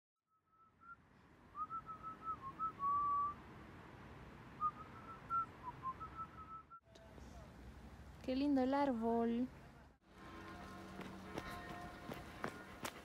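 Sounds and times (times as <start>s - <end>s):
person whistling a tune: 1.6s - 3.4s, 4.6s - 6.8s.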